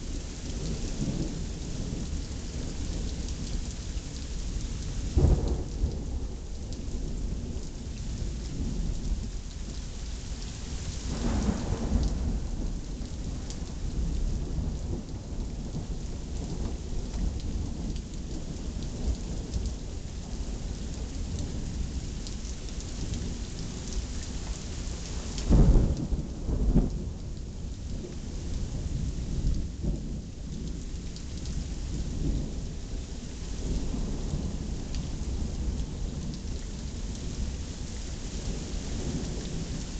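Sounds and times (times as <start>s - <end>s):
rain hissing: 0.0s - 39.9s
thunder rumbling: 25.4s - 27.8s.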